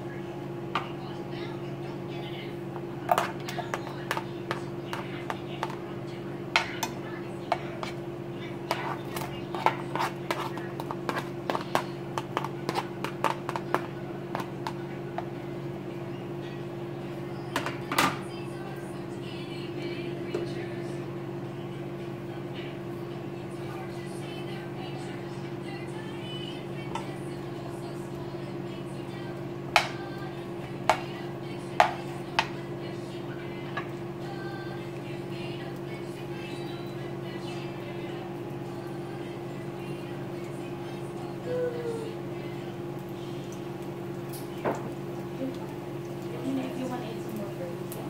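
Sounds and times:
steady low hum: 0.0s - 48.0s
spatula tapping a pan: 2.8s - 5.9s, 6.5s - 8.0s, 8.6s - 15.3s, 29.7s - 30.0s, 30.9s - 31.2s, 31.8s - 32.6s
onions frying in a pan: 7.7s - 18.0s, 41.3s - 48.0s.

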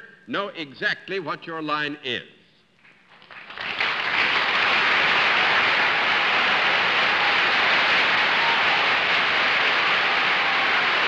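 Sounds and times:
studio audience applauding: 3.1s - 11.0s.

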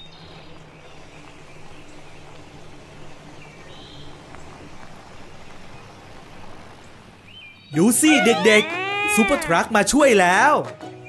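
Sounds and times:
cartoon engine hum: 8.1s - 9.6s.

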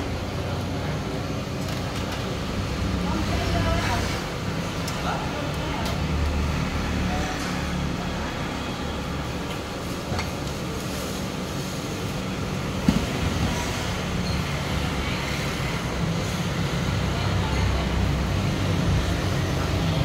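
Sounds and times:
street traffic noise: 0.0s - 20.0s.

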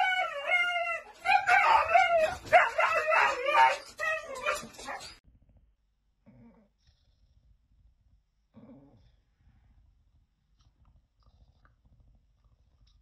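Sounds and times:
dog howling: 0.0s - 5.2s.

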